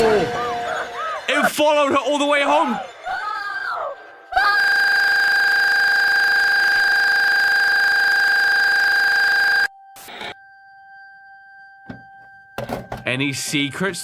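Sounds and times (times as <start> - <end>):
high-pitched electronic tone: 4.4 - 10.5.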